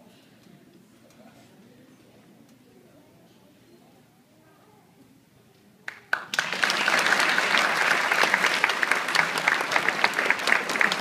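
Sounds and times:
audience applause: 0:06.1 - 0:11.0.

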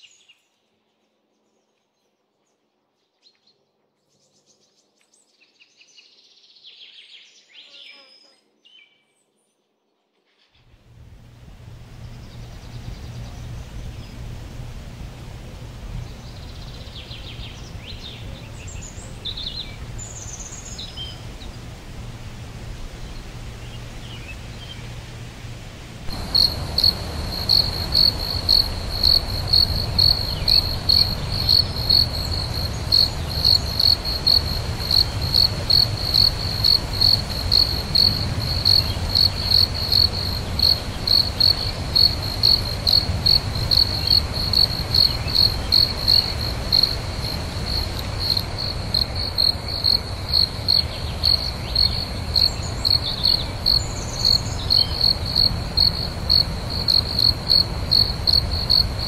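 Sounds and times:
low night ambience rumble: 0:10.6 - 0:59.0
crickets chirping: 0:10.9 - 0:59.0.

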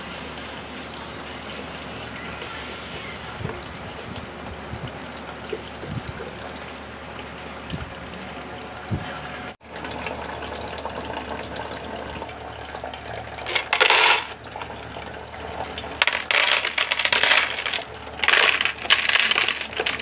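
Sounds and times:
pebbles clattering into bowl: 0:13.4 - 0:14.4, 0:16.0 - 0:20.0.

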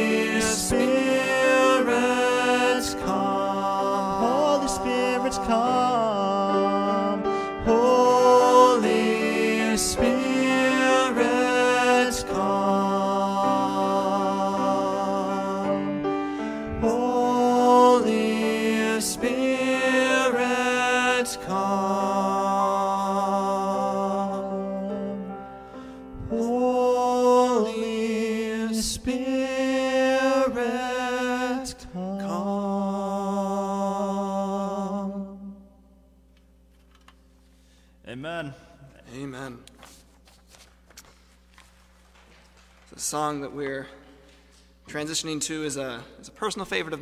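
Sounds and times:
men singing: 0:00.0 - 0:25.3, 0:26.3 - 0:35.5
grand piano: 0:00.0 - 0:35.4.

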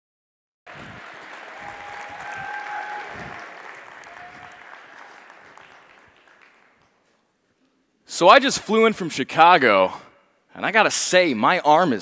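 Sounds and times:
audience applauding: 0:00.7 - 0:07.1.

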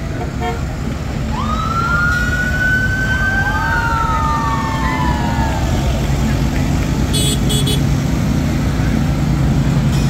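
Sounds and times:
low engine rumble: 0:00.0 - 0:10.0
siren wailing: 0:01.3 - 0:05.9.

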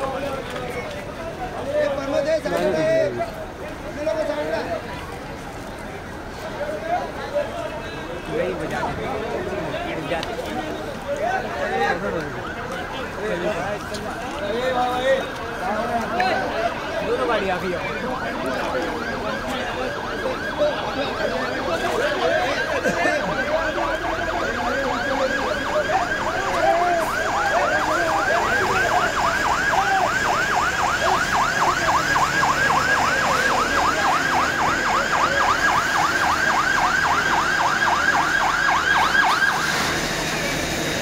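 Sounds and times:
fire engine siren yelping: 0:00.0 - 0:41.0.

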